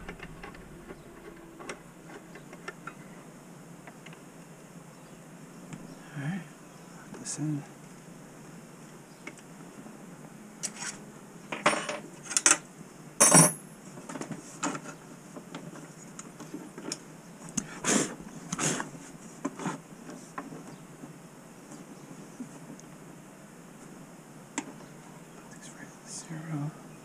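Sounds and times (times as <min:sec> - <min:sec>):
metal clunks and clatter: 0:00.0 - 0:01.8.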